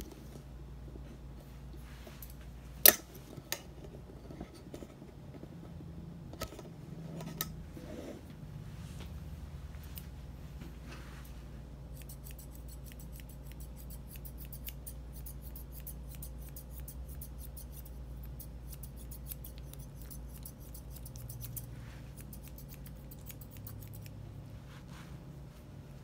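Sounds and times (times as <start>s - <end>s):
low steady hum: 0.0s - 26.0s
shears snipping fur: 11.9s - 24.2s.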